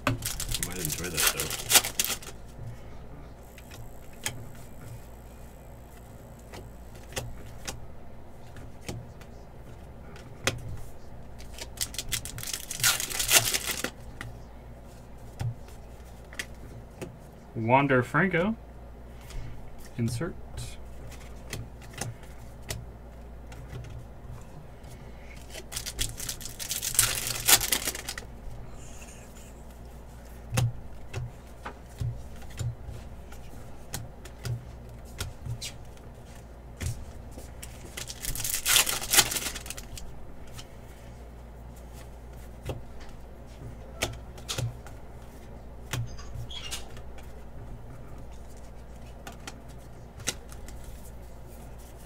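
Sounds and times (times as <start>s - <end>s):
foil wrappers crinkling: 0.0s - 2.4s, 11.4s - 14.0s, 25.4s - 28.3s, 37.6s - 40.6s.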